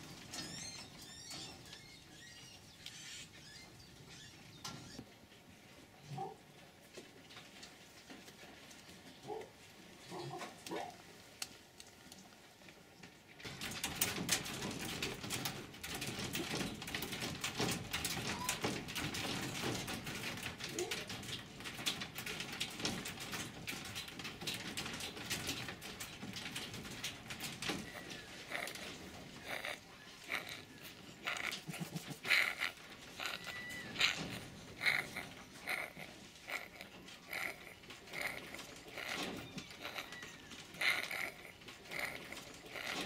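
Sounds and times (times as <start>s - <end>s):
wire mesh cage rattling: 0.0s - 2.7s, 13.4s - 43.0s
fox whining: 27.6s - 43.0s
fox cub whimpering: 27.8s - 43.0s.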